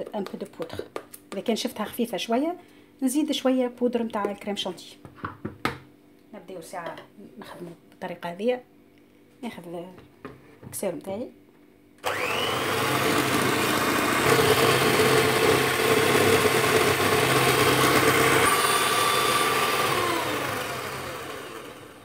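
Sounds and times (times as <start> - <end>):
electric hand mixer running: 12.0 - 22.0.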